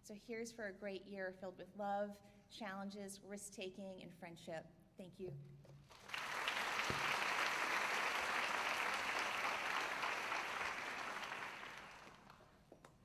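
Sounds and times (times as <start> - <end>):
audience applauding: 5.9 - 12.5.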